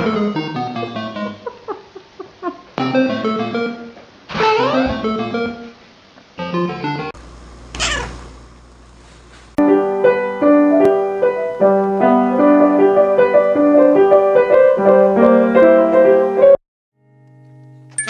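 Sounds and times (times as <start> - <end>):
grand piano playing: 9.6 - 16.6.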